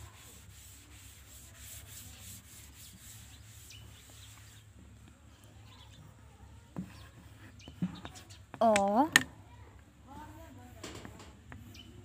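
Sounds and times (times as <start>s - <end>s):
cloth rubbing on blackboard: 0.0s - 4.7s.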